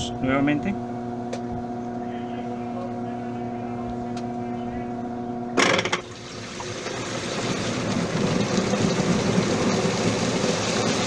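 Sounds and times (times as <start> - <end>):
washing machine motor hum: 0.0 - 11.0
washing machine drum spinning: 5.6 - 11.0.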